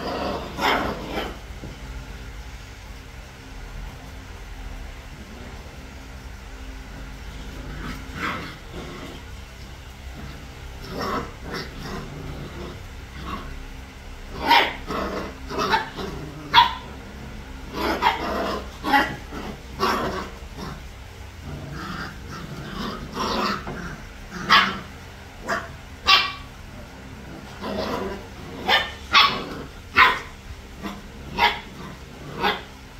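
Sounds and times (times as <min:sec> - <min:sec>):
puppies yipping and barking: 0:14.4 - 0:20.8, 0:22.0 - 0:26.7, 0:27.4 - 0:32.9.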